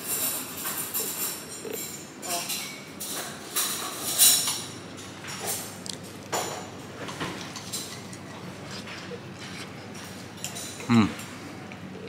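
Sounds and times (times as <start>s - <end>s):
cutlery scraping a plate: 6.4s - 10.9s.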